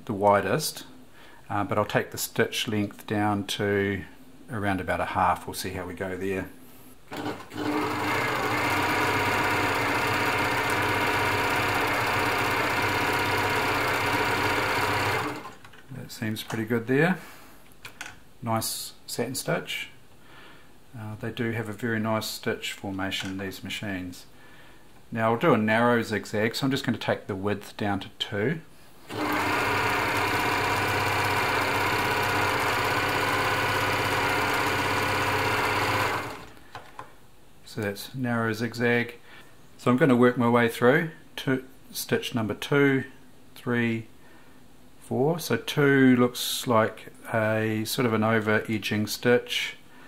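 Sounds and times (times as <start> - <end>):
sewing machine running: 7.1 - 15.6, 29.1 - 36.6.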